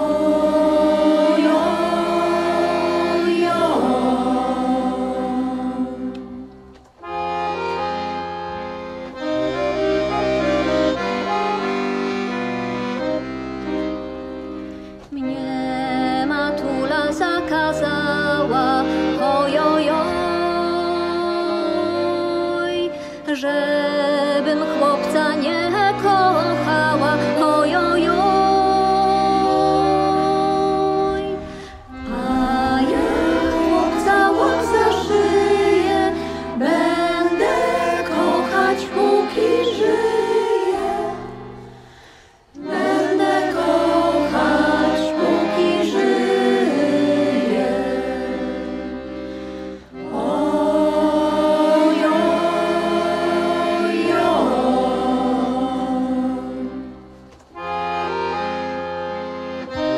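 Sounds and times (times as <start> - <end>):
women's choir singing: 0.0 - 8.0, 15.1 - 57.7
accordion: 0.0 - 59.9
double bass: 23.7 - 41.9.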